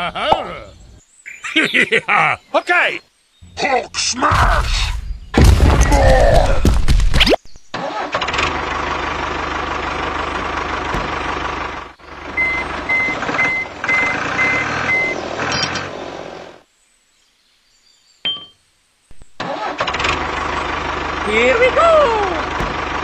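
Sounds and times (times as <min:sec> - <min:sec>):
reversing alarm beeping: 0:12.4 - 0:15.8.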